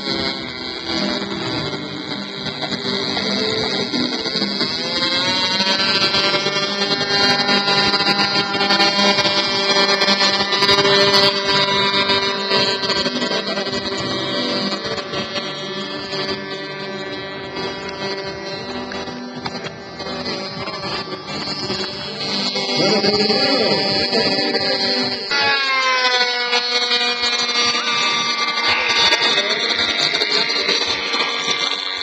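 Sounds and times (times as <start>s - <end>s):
model plane engine revving: 0.0s - 32.0s.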